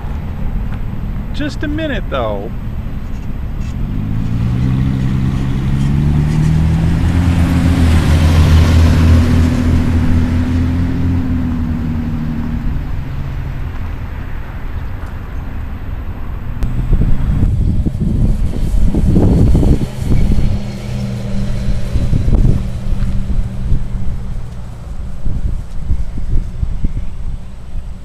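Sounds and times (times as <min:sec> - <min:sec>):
car driving past: 0:03.2 - 0:28.0.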